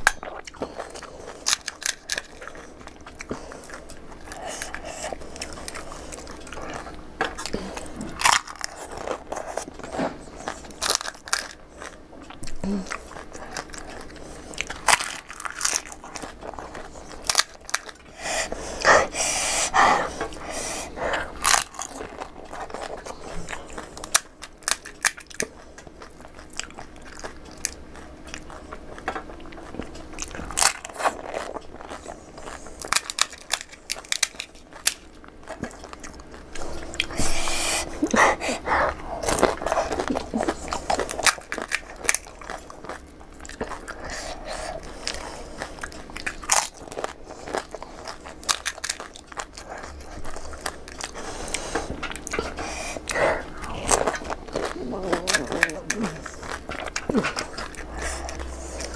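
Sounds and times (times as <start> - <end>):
crisp shells crunching when chewed: 0.0 - 58.9
fried shells cracking by hand: 1.4 - 3.4, 14.6 - 16.4, 32.8 - 36.2, 39.2 - 43.9, 45.9 - 49.9.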